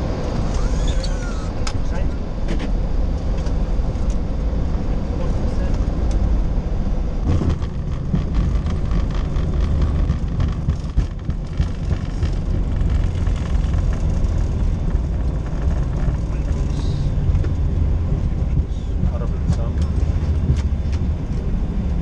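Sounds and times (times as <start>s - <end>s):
engine and wheel rumble: 0.0s - 22.0s
cockpit rattles: 7.2s - 17.6s.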